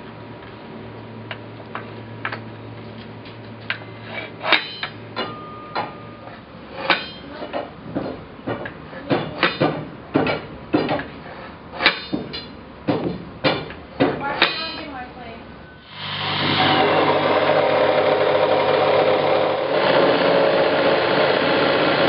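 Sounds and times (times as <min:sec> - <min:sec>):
metal bar clanking against rail: 0:14.4 - 0:14.9.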